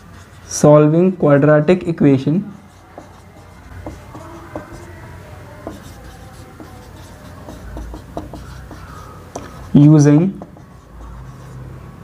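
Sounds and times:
marker squeaking on whiteboard: 0:02.5 - 0:11.7.

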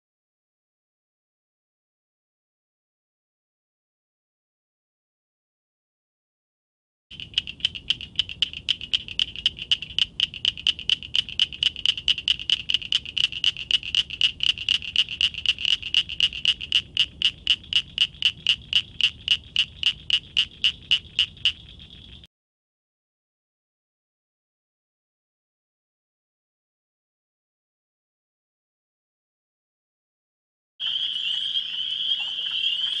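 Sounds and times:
frog clicking calls: 0:07.1 - 0:22.3, 0:30.8 - 0:33.0.

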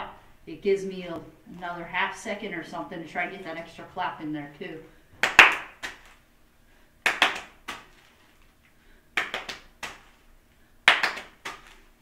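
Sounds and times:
hands clapping rapidly: 0:05.2 - 0:06.2, 0:07.0 - 0:07.9, 0:09.2 - 0:10.2, 0:10.8 - 0:11.8.

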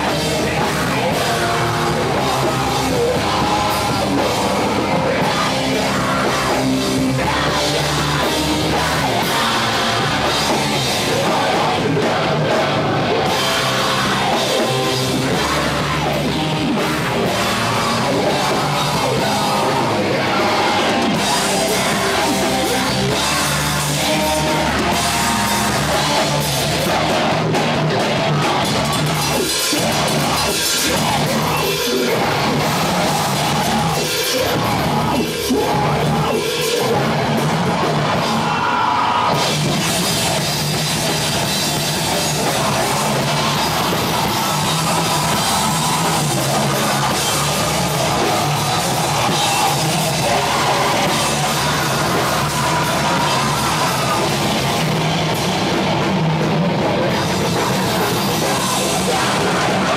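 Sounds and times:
live heavy rock band: 0:00.0 - 0:59.9.

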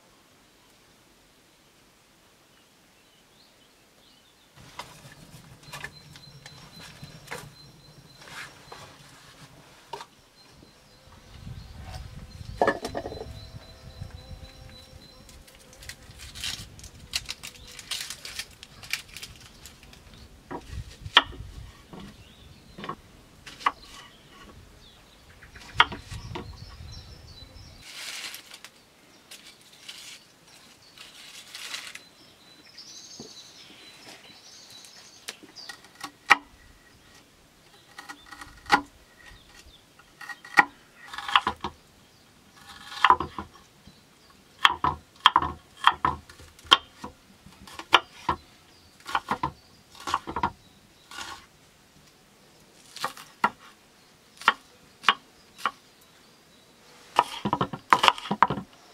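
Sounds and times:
faint high chirps: 0:04.6 - 0:16.2.

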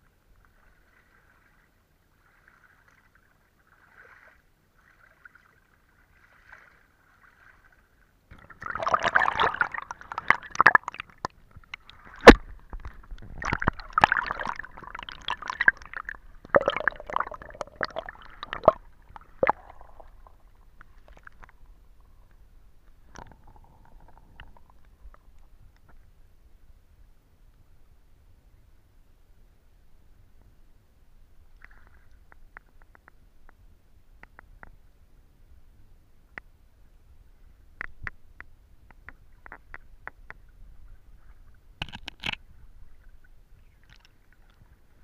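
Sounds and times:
sloshing and scraping: 0:00.5 - 0:25.6.

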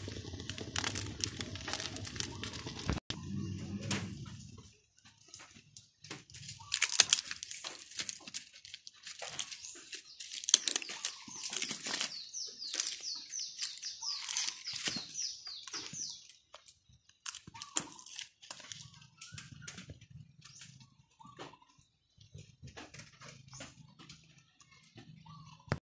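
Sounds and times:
dry leaves crinkling and tearing: 0:00.0 - 0:03.0, 0:05.4 - 0:19.7
high falling chirps: 0:09.2 - 0:22.0.

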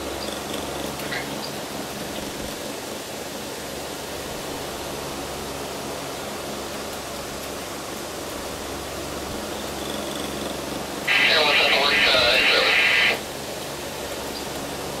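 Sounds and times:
steady hiss: 0:11.0 - 0:13.8.

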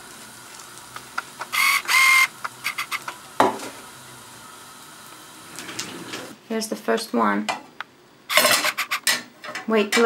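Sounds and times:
pancake sizzling in oil: 0:00.0 - 0:06.4.

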